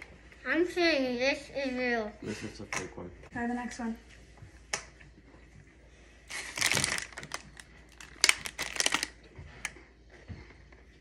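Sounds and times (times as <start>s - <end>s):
plastic packaging crinkling: 6.3s - 9.3s.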